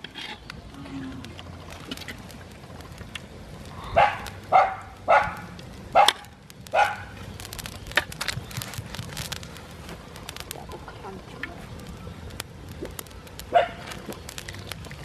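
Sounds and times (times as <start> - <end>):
wood fire crackling: 0.0 - 15.0
dog barking: 4.0 - 5.4, 6.8 - 7.1, 13.5 - 13.8.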